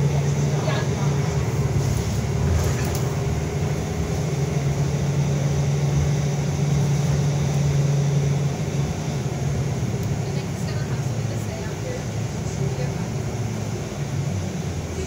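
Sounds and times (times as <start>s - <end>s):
bus engine hum: 0.0s - 15.0s
road rumble: 0.0s - 15.0s.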